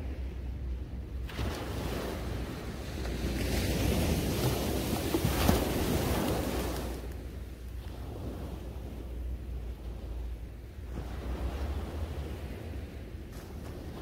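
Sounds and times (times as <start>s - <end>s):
wind rumble on microphone: 0.0s - 14.0s
small surf breaking on beach: 1.2s - 7.2s.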